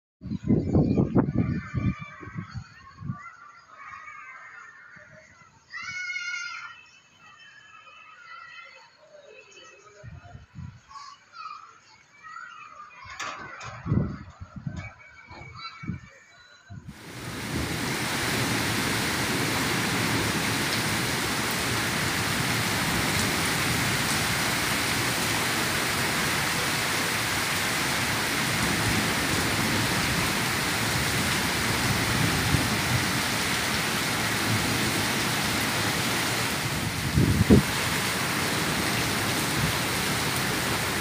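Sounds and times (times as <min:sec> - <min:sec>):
heavy rain pouring: 0:16.9 - 0:41.0.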